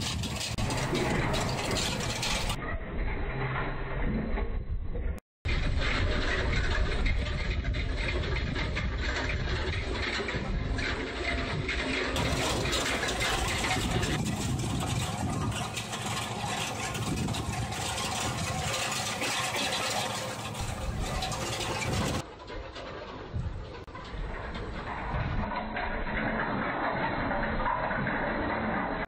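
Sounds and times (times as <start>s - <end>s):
tractor engine under load: 0.0s - 4.0s, 5.5s - 29.0s.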